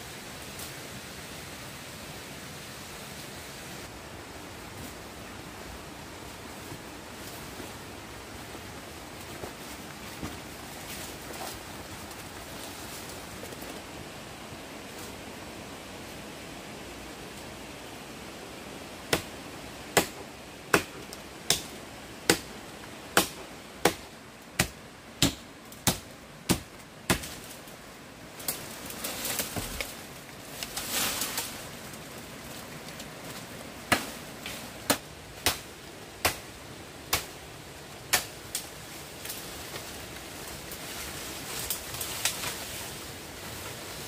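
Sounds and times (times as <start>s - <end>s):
rustling and scraping: 6.4s - 13.9s, 28.4s - 34.8s.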